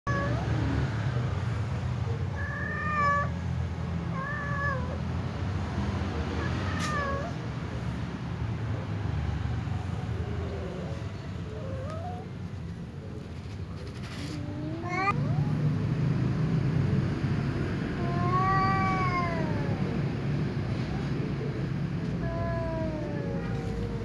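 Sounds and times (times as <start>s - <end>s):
cat meowing: 0.1s - 0.7s, 2.2s - 3.4s, 4.1s - 5.1s, 6.4s - 7.4s, 10.4s - 12.4s, 14.2s - 15.6s, 18.0s - 20.1s, 22.0s - 24.0s.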